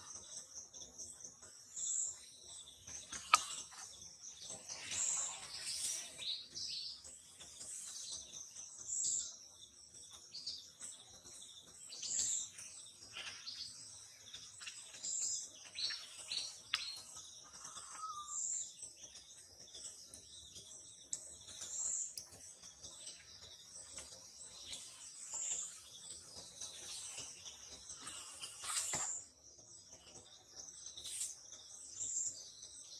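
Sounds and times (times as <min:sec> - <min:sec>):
birds chirping: 0:00.0 - 0:32.9
short high bird call: 0:17.8 - 0:18.5.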